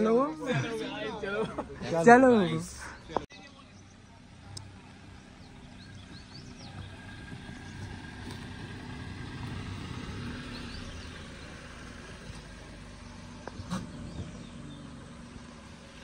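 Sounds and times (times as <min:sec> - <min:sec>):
car engine running at low speed: 0:03.6 - 0:16.0.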